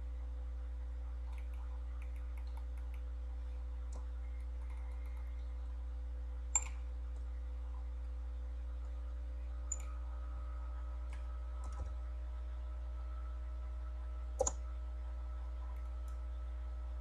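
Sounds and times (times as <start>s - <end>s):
low electrical hum: 0.0s - 17.0s
mouse and keyboard clicks: 1.3s - 3.1s, 6.5s - 6.8s, 14.4s - 14.6s.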